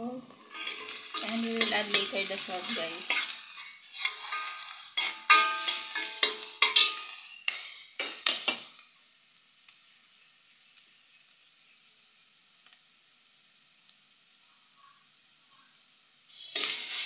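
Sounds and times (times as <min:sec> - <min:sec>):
food sizzling in oil: 0:00.0 - 0:17.0
metal spoon scraping a pot: 0:00.4 - 0:07.9.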